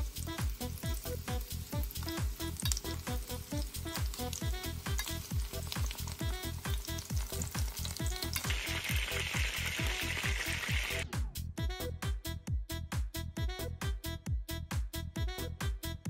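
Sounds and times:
chicken wings frying in oil: 0:00.0 - 0:11.0
music with thumping beat: 0:00.0 - 0:16.0.

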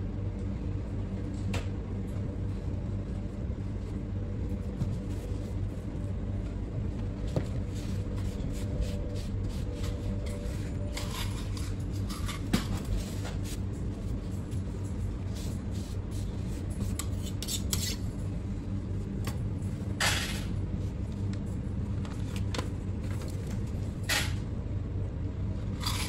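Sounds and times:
kitchen machinery humming: 0:00.7 - 0:26.0
rustles and scrapes at cutting board: 0:04.8 - 0:05.8, 0:15.2 - 0:18.1.

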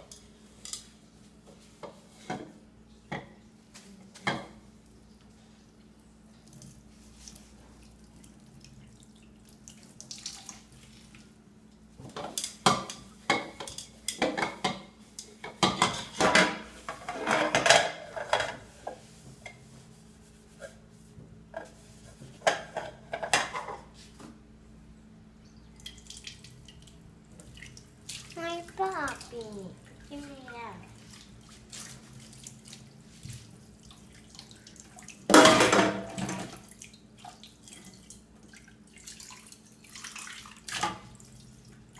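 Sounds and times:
dishes clattering in metal sink: 0:01.8 - 0:03.4, 0:04.2 - 0:04.6, 0:12.0 - 0:19.6, 0:21.5 - 0:23.9, 0:35.3 - 0:36.7
sponge scrubbing dishes: 0:12.1 - 0:24.2
running water: 0:25.7 - 0:41.9.

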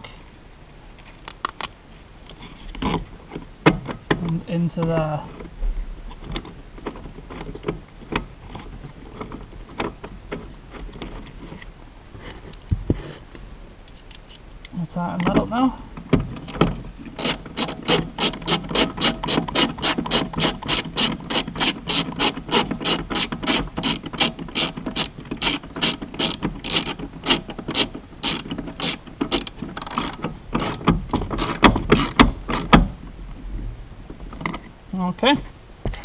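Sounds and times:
socket ratchet clicking: 0:17.2 - 0:32.7.

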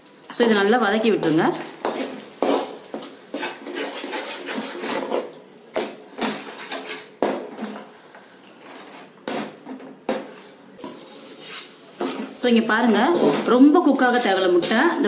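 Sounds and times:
metal ladle scraping metal pan: 0:01.2 - 0:05.3, 0:10.8 - 0:15.0.

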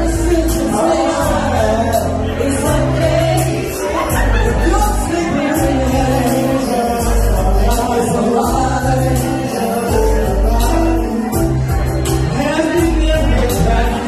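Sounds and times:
loud music with heavy bass: 0:00.0 - 0:14.0
people singing into microphones: 0:00.0 - 0:14.0.

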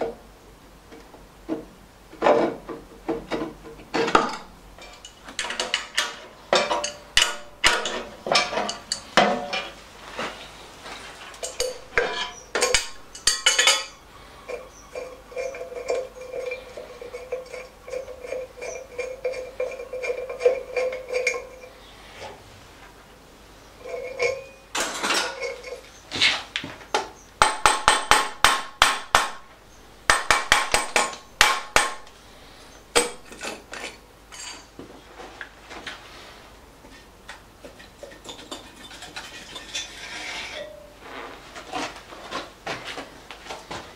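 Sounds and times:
hand tools clinking on metal: 0:04.0 - 0:09.8, 0:11.4 - 0:21.7, 0:23.8 - 0:26.0, 0:33.0 - 0:34.8
metallic ringing: 0:11.4 - 0:21.9, 0:23.8 - 0:25.9, 0:39.8 - 0:41.0.

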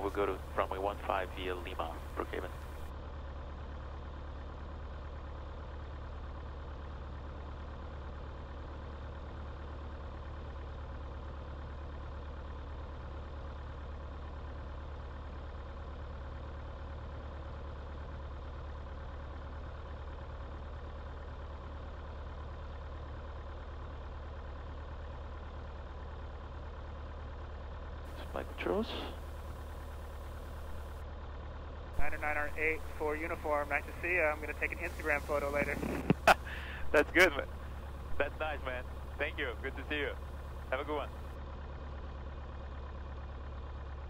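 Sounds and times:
light aircraft engine droning: 0:00.0 - 0:02.9, 0:28.1 - 0:31.0, 0:32.0 - 0:43.0.

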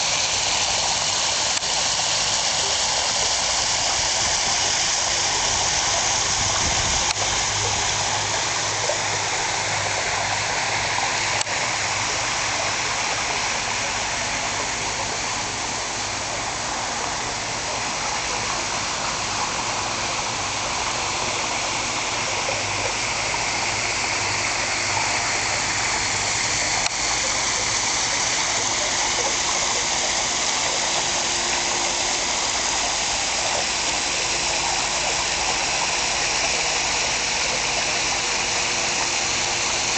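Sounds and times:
water splashing into pool: 0:00.0 - 0:39.9.

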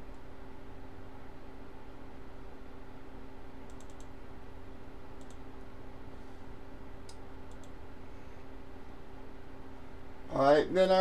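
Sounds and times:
low electrical hum: 0:00.0 - 0:11.0
faint sharp clicks: 0:03.7 - 0:04.1, 0:05.2 - 0:05.4, 0:07.0 - 0:07.8.

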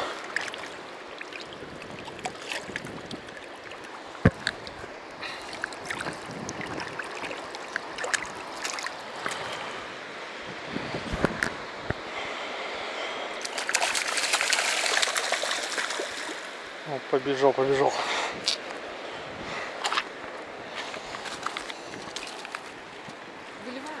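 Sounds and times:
river water splashing over pebbles: 0:00.0 - 0:10.1, 0:13.4 - 0:16.8, 0:19.7 - 0:24.0
stones knocking underfoot: 0:04.2 - 0:04.7.

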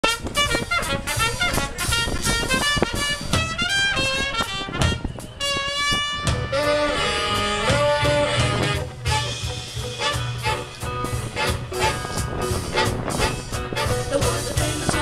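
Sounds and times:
swing band playing: 0:00.0 - 0:15.0.

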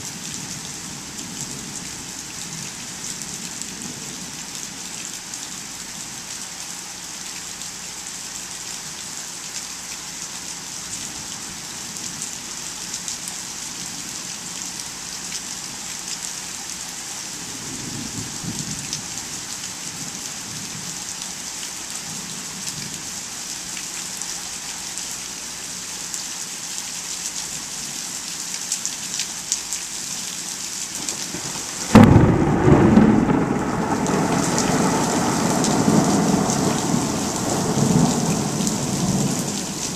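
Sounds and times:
steady rain falling: 0:00.0 - 0:39.9
thunder rumbling: 0:31.0 - 0:39.9
loud thunder clap: 0:31.1 - 0:39.5.

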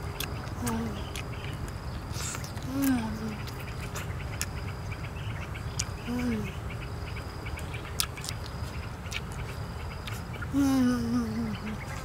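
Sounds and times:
insects chirping: 0:00.0 - 0:12.0
woman humming mmm: 0:06.1 - 0:06.6, 0:10.5 - 0:11.8
lip-smacking clicks: 0:08.0 - 0:09.4.

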